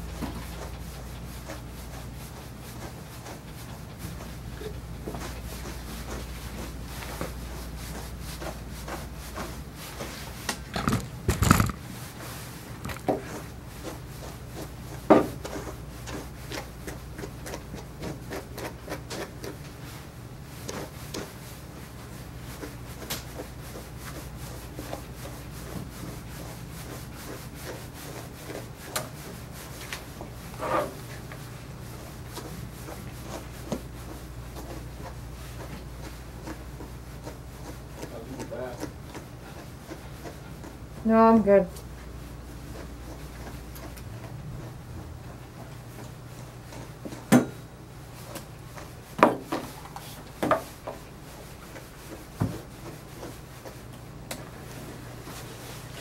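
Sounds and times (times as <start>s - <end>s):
brush rubbing through dog fur: 0.0s - 56.0s
steady low hum: 0.0s - 56.0s.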